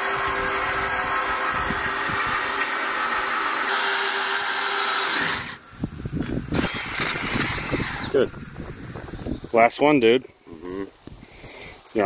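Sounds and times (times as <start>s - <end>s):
cordless drill whining into steel: 0.0s - 9.5s.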